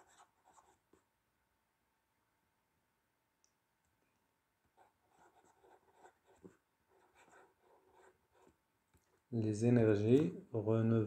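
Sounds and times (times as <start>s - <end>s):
pen scratching handwriting: 0.0s - 0.8s, 5.1s - 8.5s.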